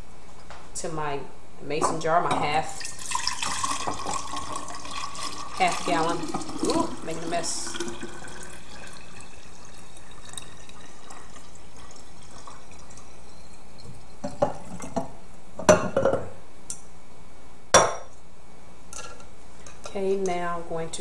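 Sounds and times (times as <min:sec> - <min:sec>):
thick juice pouring into jar: 0:02.8 - 0:14.0
glass clinks and knocks: 0:15.6 - 0:16.3.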